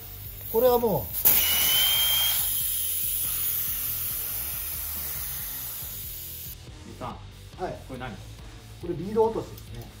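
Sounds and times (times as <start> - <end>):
air hissing from tyre valve: 0.0 - 6.6.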